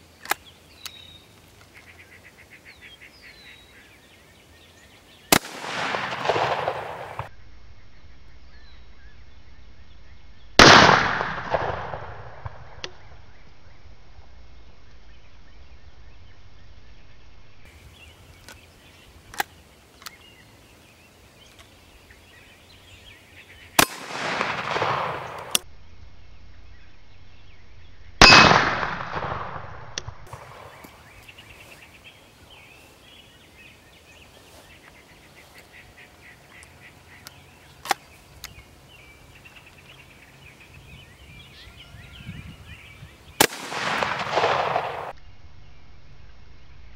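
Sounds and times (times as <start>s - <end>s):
rifle shots echoing: 5.3s - 7.3s, 10.6s - 12.8s, 23.8s - 25.6s, 28.2s - 30.8s, 43.4s - 45.2s.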